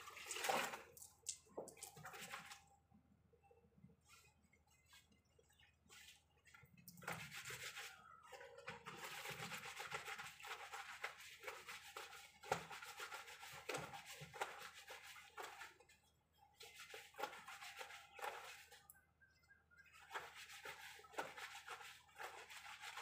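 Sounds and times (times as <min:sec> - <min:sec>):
water splashes: 0:00.0 - 0:02.7.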